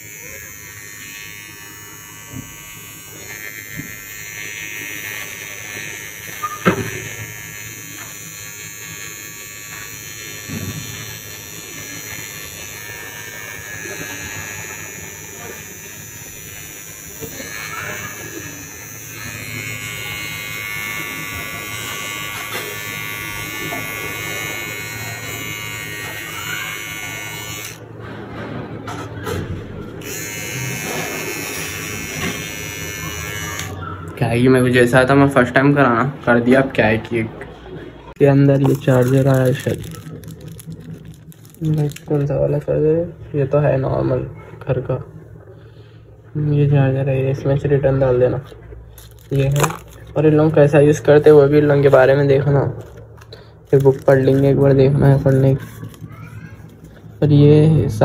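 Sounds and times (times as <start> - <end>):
electric beard trimmer buzzing: 0.0 - 27.9, 30.0 - 33.8, 38.2 - 40.8.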